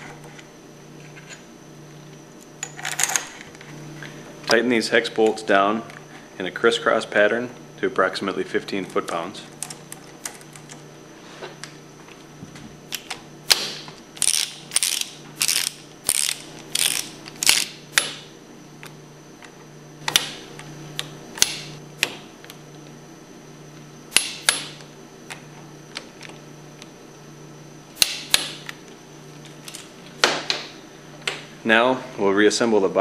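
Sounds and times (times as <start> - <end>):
ratchet wrench clicking: 14.2 - 18.1.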